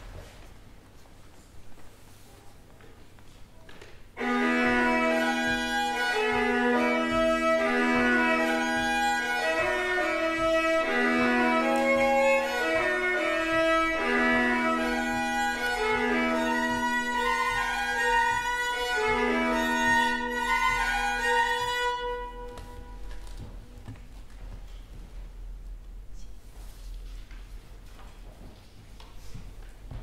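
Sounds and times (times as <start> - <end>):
fiddle bowing melody over drone: 4.2 - 23.1.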